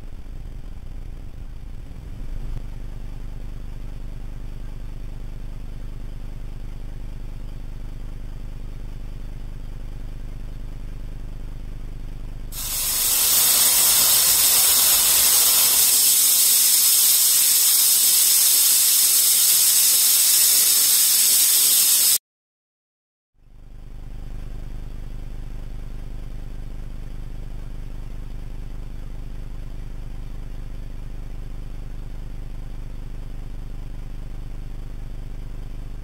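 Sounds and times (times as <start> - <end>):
router spindle cutting acrylic: 12.6 - 22.2.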